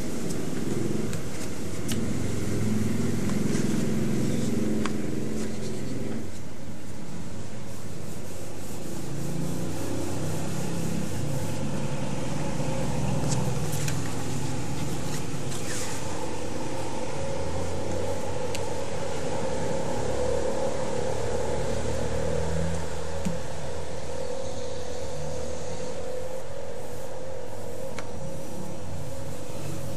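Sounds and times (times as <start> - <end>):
cotton balls rubbing paper: 0.0 - 16.4
steady background hum: 0.0 - 29.9.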